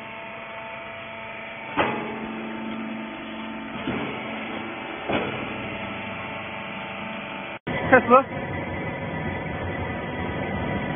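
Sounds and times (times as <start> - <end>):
baler motor hum: 0.0 - 10.9
baler press clunk: 1.7 - 6.4.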